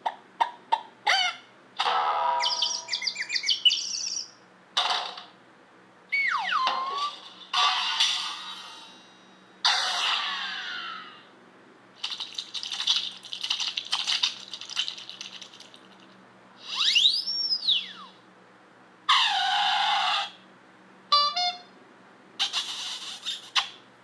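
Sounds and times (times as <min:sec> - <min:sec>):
slide whistle: 0:06.1 - 0:06.8, 0:16.6 - 0:18.2
comic rattling and scraping: 0:12.0 - 0:16.2
falling squeal: 0:16.6 - 0:18.2, 0:19.1 - 0:20.4.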